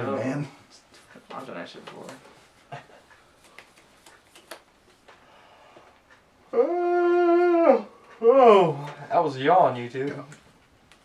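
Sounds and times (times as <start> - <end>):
playing cards being handled: 3.4 - 5.1
loud long wail: 6.5 - 8.8.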